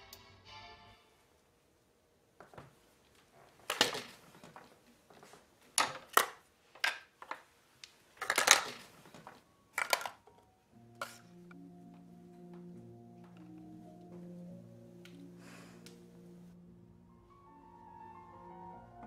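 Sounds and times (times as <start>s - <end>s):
small items knocking and clinking: 3.6s - 4.7s, 5.7s - 11.2s.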